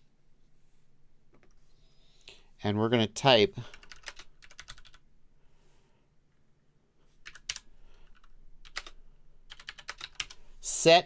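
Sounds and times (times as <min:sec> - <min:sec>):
computer keyboard typing: 0:03.7 - 0:05.0, 0:07.2 - 0:10.4.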